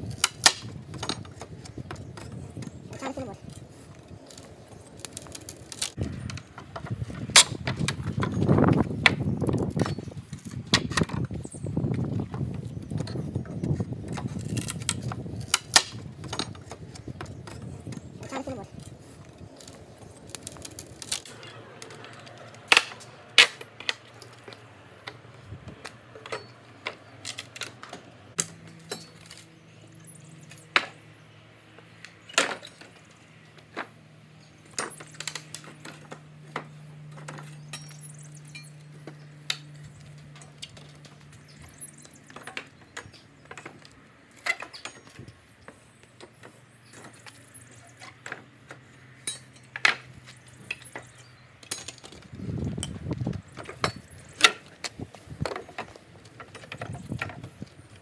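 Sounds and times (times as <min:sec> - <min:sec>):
metal bar cracking wooden boards: 0:00.0 - 0:01.6, 0:14.2 - 0:17.6, 0:19.6 - 0:24.1.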